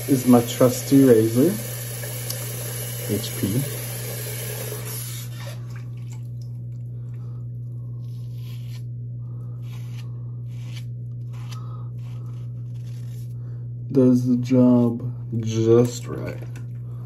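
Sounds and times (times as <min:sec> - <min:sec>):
low hum: 0:04.9 - 0:17.0
razor scraping stubble: 0:08.0 - 0:08.9, 0:09.6 - 0:13.4.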